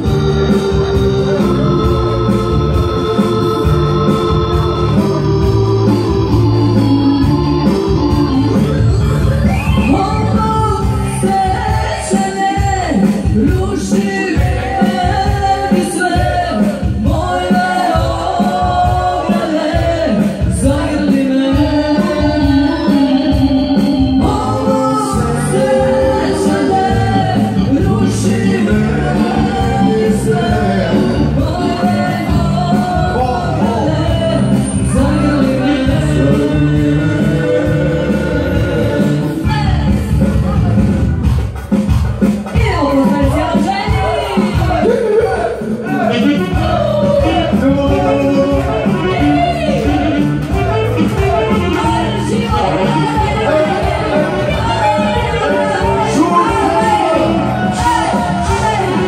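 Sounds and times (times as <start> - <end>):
electronic keyboard: 0.0 - 11.8
keyboard playing organ-like chords: 0.0 - 11.8, 20.7 - 39.6, 46.0 - 59.0
accordion: 0.0 - 12.4, 13.8 - 41.8, 45.9 - 59.0
folk dance music: 0.0 - 59.0
steady drum beat: 0.0 - 59.0.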